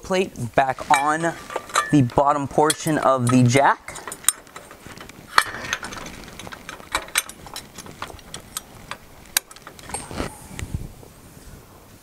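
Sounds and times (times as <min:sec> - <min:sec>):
metal clicks and clinks: 0:00.8 - 0:10.1.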